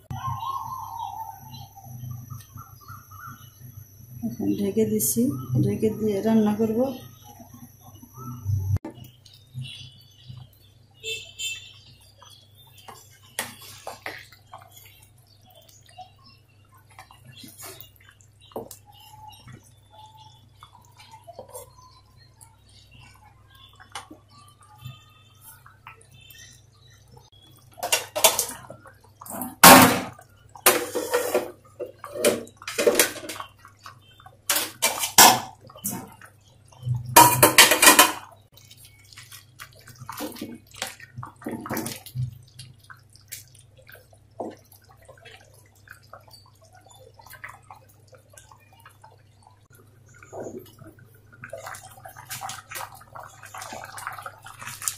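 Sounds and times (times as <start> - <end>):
porridge bubbling in a pot: 0.0 - 54.9
wet plops and splutters: 25.6 - 54.9.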